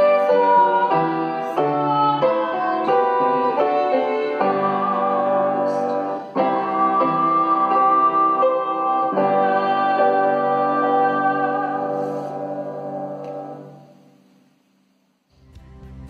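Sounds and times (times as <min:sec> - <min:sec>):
upright piano playing hymn chords: 0:00.0 - 0:14.0.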